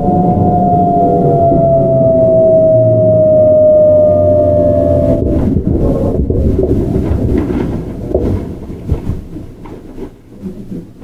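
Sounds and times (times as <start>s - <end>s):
electric train inverter whining: 0.0s - 11.0s
wheel and track rumble: 0.0s - 11.0s.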